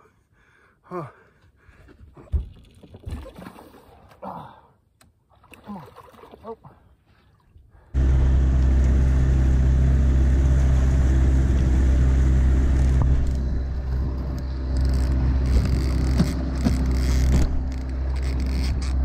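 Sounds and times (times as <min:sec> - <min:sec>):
outboard motor drone: 0:07.9 - 0:19.0.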